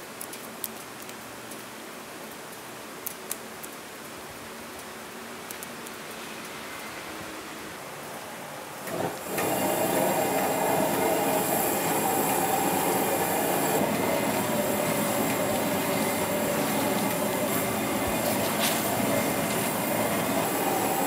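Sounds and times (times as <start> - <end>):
food sizzling: 8.8 - 21.0.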